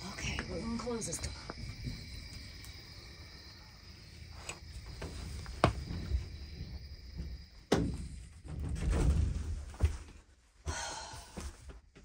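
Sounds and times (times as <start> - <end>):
faint insect drone: 0.0 - 9.2.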